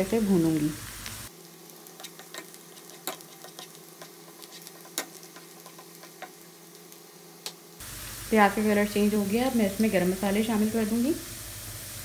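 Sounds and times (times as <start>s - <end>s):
onions frying in hot oil: 0.0s - 12.0s
spoon stirring in pan: 1.8s - 6.5s.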